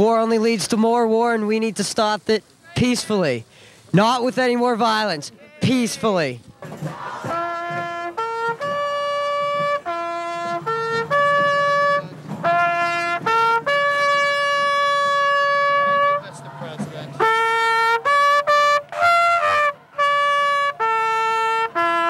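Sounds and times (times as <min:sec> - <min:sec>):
slow brass horn melody: 0:07.3 - 0:16.6, 0:17.2 - 0:22.0.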